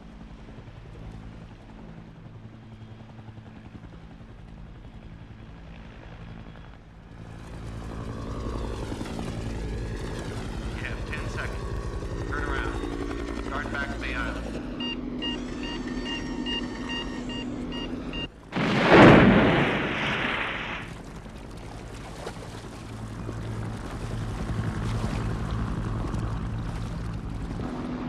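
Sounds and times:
steady engine hum: 0.0 - 28.0
high electronic beeps: 14.7 - 18.3.

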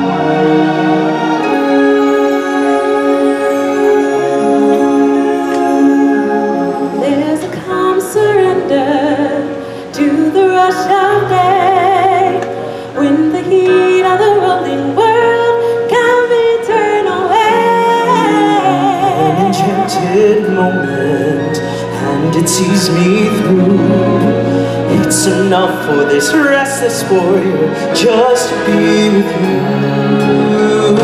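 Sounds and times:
orchestral accompaniment: 0.0 - 31.0.

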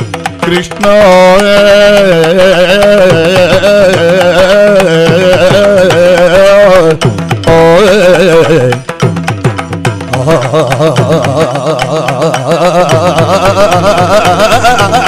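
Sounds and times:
drum strokes: 0.0 - 15.0
man singing high ornamented note: 10.2 - 15.0.

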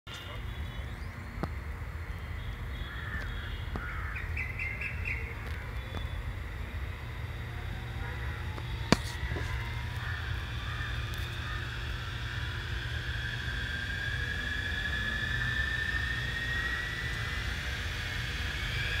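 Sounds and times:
steady low rumble: 0.1 - 19.0
electric motor whine rising: 0.4 - 19.0
birds chirping and calling: 2.1 - 6.2.

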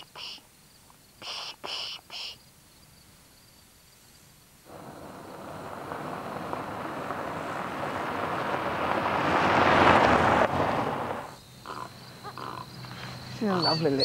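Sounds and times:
car driving on gravel road: 4.7 - 14.0.

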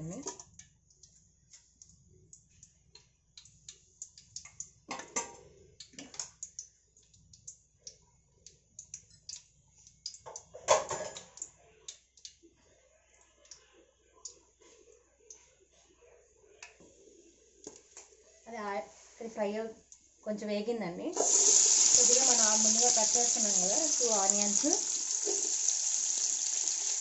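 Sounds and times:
spices crackling in hot oil: 0.2 - 5.0, 5.7 - 12.4, 21.2 - 27.0.

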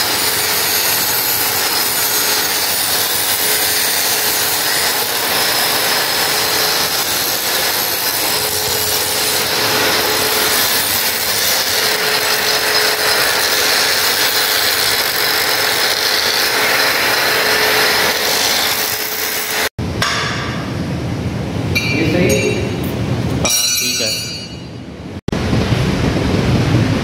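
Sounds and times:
angle grinder cutting steel: 0.0 - 19.7.

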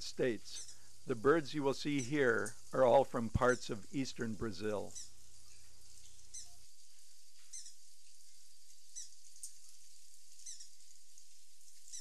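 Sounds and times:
hummingbird chip calls: 0.0 - 6.6, 7.5 - 7.8, 8.9 - 9.2, 10.4 - 10.8
steady hiss: 0.0 - 12.0.

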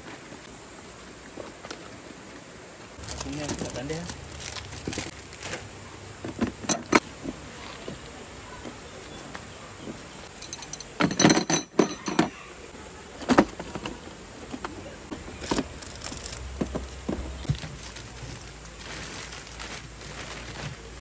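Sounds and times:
small hard objects clinking: 3.0 - 7.0, 10.3 - 12.4, 15.1 - 21.0.

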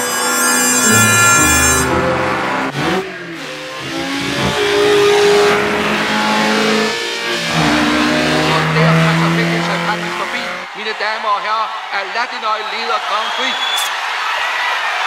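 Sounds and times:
race car engines revving: 1.8 - 10.7.

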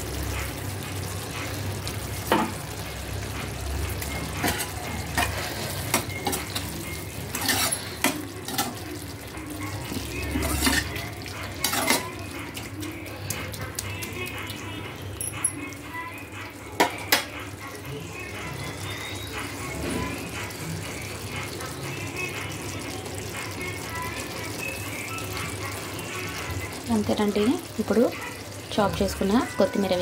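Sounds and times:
low frying sizzle: 0.0 - 30.0
spoon scraping and knocking pan: 7.3 - 8.8, 11.6 - 12.1.

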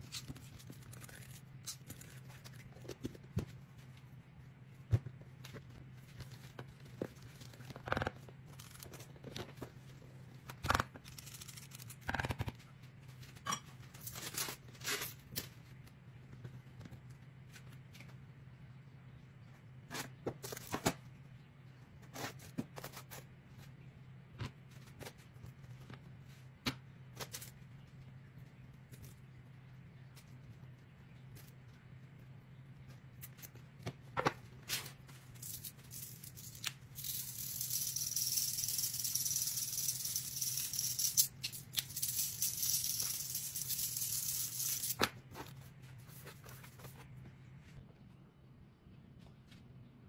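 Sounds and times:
rustles and scrapes: 40.7 - 47.9.

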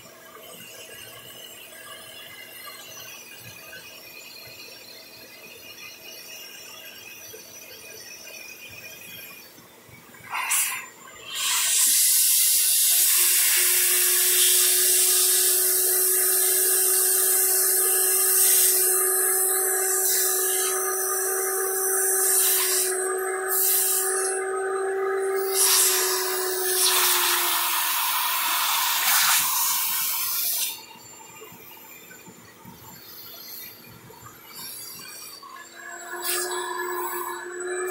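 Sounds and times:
vacuum cleaner suction: 10.2 - 30.8, 35.5 - 37.9.

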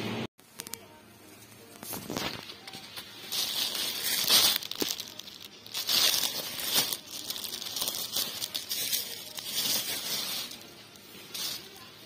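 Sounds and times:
plastic wrapping crinkling: 1.4 - 12.0.

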